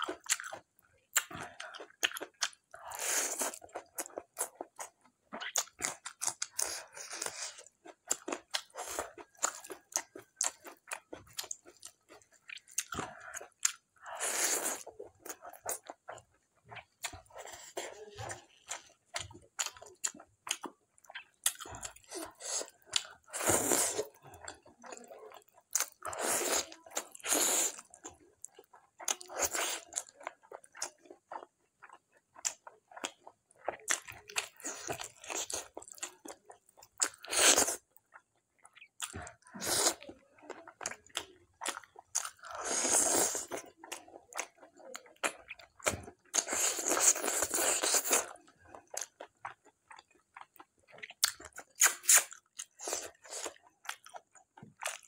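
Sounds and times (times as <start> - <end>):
wet chewing and biting: 40.8 - 55.0.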